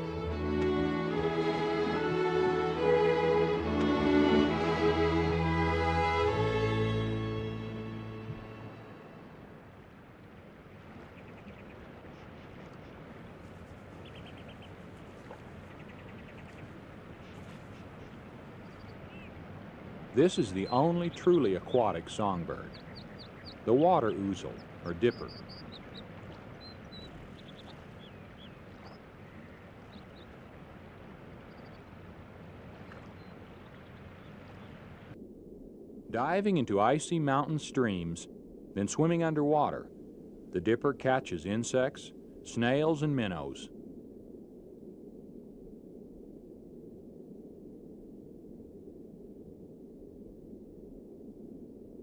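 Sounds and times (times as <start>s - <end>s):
stream rushing water: 0.0s - 11.0s, 23.6s - 35.2s.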